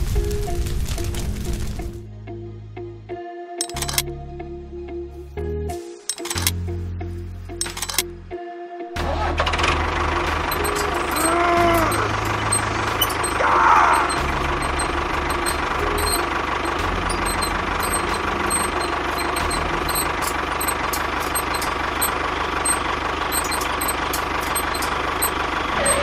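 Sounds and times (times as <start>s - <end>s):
tractor engine running: 3.6s - 4.0s, 6.1s - 6.6s, 7.6s - 8.0s, 9.0s - 26.0s
short rising and falling call: 10.5s - 26.0s.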